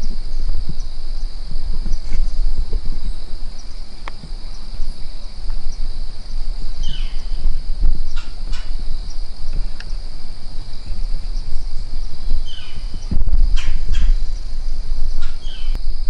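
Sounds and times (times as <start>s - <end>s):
high insect-like drone: 0.0s - 16.0s
low rumble: 0.0s - 16.0s
faint ticks: 3.6s - 4.6s, 7.9s - 10.1s.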